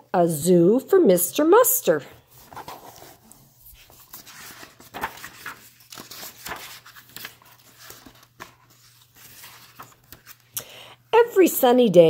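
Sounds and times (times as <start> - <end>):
book pages turning: 2.3 - 10.6.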